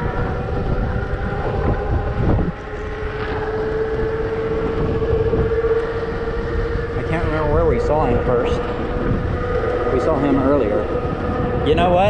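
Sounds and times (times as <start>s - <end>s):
electric motor whine: 0.0s - 12.0s
wind rushing over microphone: 0.0s - 12.0s.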